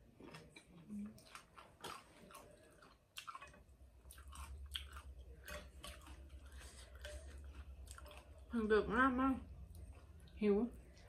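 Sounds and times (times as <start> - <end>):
close-up chewing with mouth clicks: 0.0 - 8.5.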